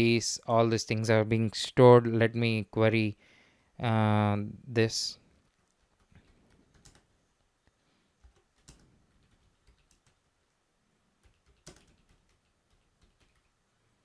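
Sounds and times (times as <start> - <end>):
faint keyboard typing clicks: 5.4 - 7.2, 8.2 - 10.6, 11.2 - 13.6.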